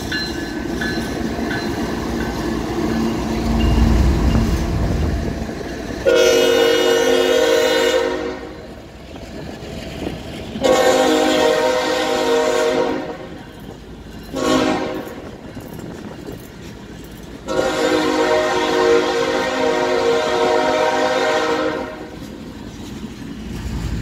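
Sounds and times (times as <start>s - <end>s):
train wagons rolling and clattering: 0.0s - 24.0s
locomotive air horn blasts: 6.0s - 8.6s, 10.6s - 13.3s, 14.3s - 15.2s, 17.4s - 22.2s.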